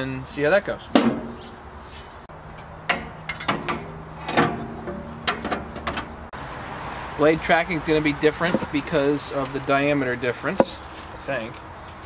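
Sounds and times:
sheet metal knocks and clanks: 0:01.0 - 0:01.4, 0:02.6 - 0:06.2.

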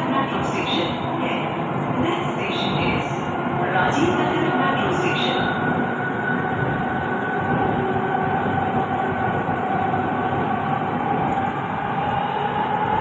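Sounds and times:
metro train wheels rumbling: 0:00.0 - 0:13.0.

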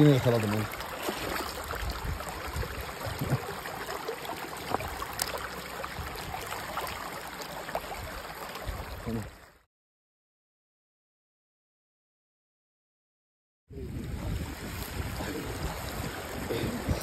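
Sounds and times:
stream water rushing and gurgling: 0:00.0 - 0:09.6, 0:13.8 - 0:17.0
small splashy ticks: 0:04.6 - 0:05.7.

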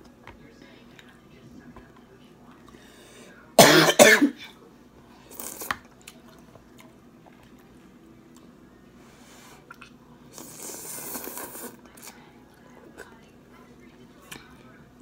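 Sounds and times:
woman coughing: 0:03.6 - 0:04.5
eating sounds: 0:05.2 - 0:08.6, 0:09.4 - 0:13.2.

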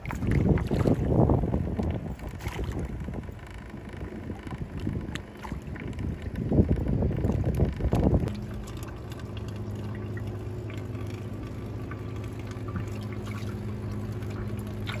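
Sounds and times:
boat motor humming: 0:00.0 - 0:15.0
water splashing and dripping: 0:07.2 - 0:15.0.

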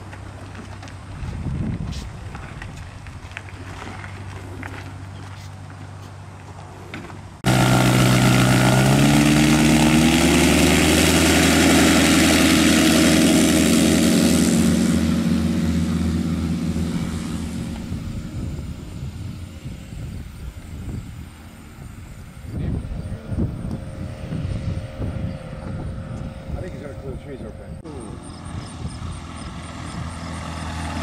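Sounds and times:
aircraft engine and propeller: 0:06.9 - 0:31.0.

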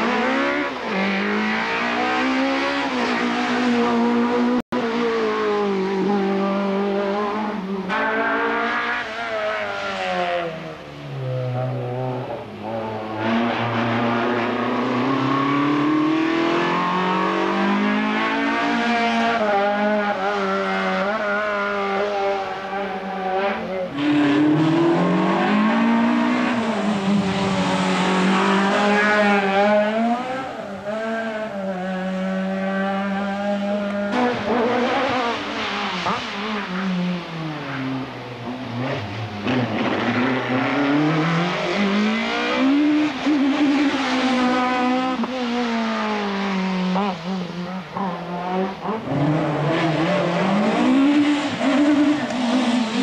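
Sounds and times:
rally car engine revving hard: 0:00.0 - 0:53.0.

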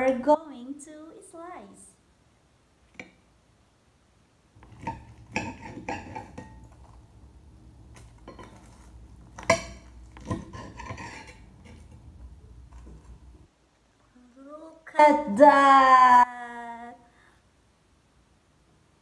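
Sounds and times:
knife and fork scraping plate: 0:04.6 - 0:07.0, 0:08.0 - 0:13.2.

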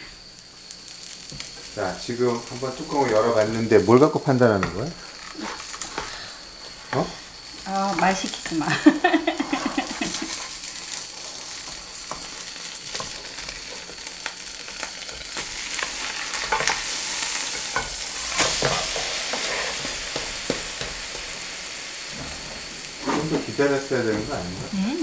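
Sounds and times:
pancake sizzling in frying pan: 0:00.0 - 0:25.0
spatulas scraping and tapping pan: 0:04.5 - 0:07.2, 0:09.4 - 0:21.4.

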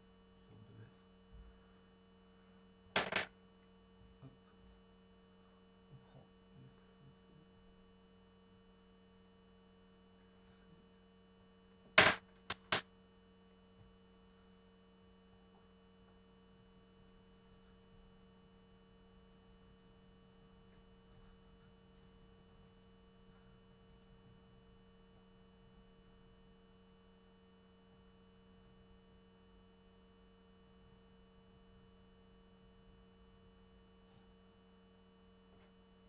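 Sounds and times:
low electrical hum: 0:00.0 - 0:36.0
sharp knocks: 0:03.0 - 0:03.3, 0:12.0 - 0:12.8.

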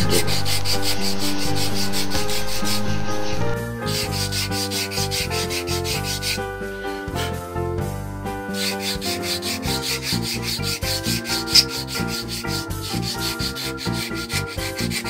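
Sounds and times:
sandpaper sanding wood: 0:00.0 - 0:03.0, 0:03.9 - 0:06.5, 0:08.6 - 0:15.0.

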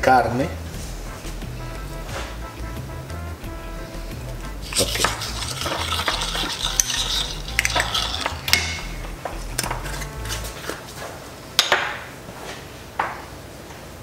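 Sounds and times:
wooden spoon scraping a pan: 0:04.6 - 0:11.2.

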